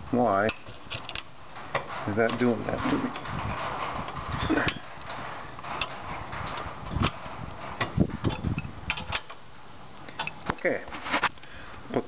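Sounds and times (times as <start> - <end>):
metal clicks and knocks: 0.4 - 10.7.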